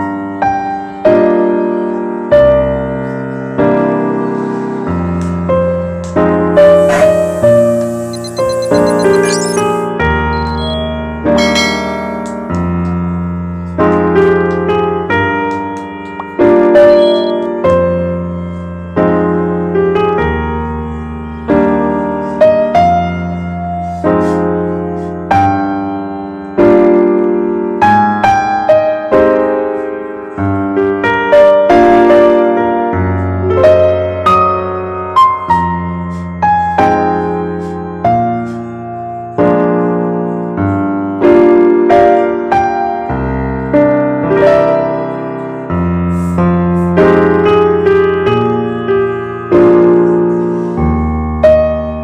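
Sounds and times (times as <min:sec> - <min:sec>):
slow piano music: 0:00.0 - 0:52.0.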